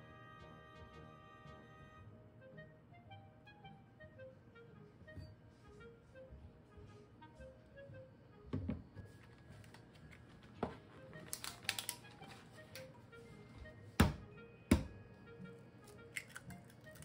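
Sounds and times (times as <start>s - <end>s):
soft background music: 0.0s - 17.0s
egg knocking on countertop: 14.0s - 15.0s.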